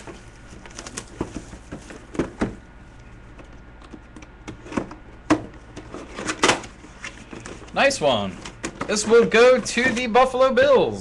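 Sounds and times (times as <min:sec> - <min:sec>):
box knocks and rustles: 0:01.1 - 0:02.6.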